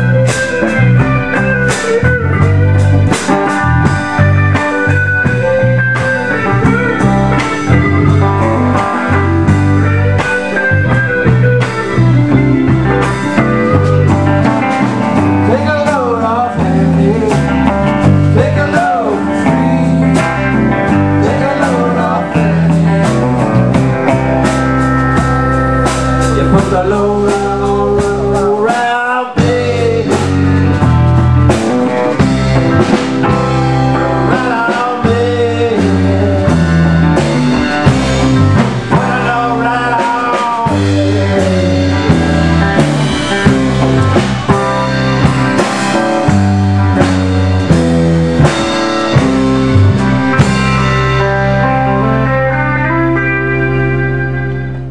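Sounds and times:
live rock band playing: 0:00.0 - 0:54.9
voices singing: 0:11.5 - 0:23.4, 0:33.8 - 0:44.8.

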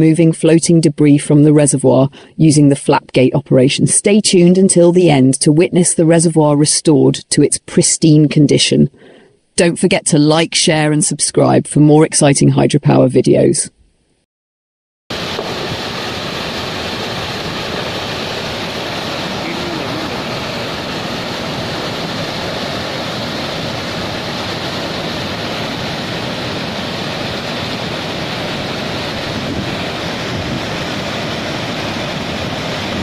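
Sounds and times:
water rushing onto concrete chute: 0:15.1 - 0:33.0.

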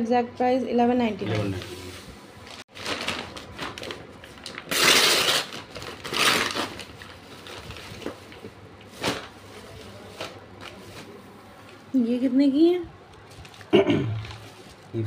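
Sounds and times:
paper mailer tearing and rustling: 0:01.3 - 0:11.2
plastic wrapping crackle: 0:01.4 - 0:11.8, 0:13.2 - 0:15.0.

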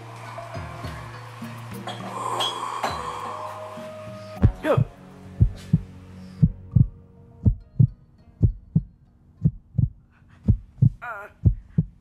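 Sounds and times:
heartbeat thumps: 0:04.4 - 0:12.0.

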